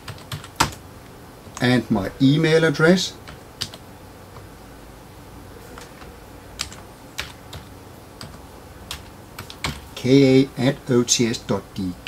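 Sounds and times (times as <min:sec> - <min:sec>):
keyboard typing: 0:00.0 - 0:00.8, 0:03.2 - 0:03.8, 0:05.8 - 0:09.9.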